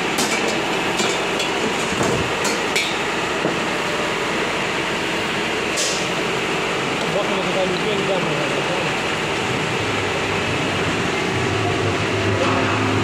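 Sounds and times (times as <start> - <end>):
gas burner hiss: 4.9 - 6.3.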